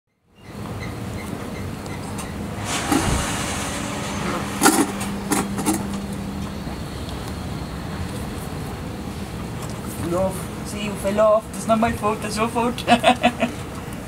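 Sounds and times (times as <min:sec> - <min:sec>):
steady low rumble: 0:02.2 - 0:09.9.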